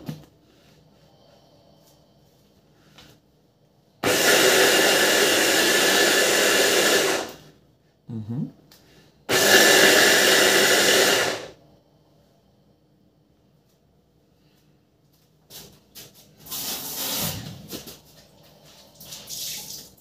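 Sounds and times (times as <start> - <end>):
hand blender running: 4.0 - 7.4, 9.3 - 11.6.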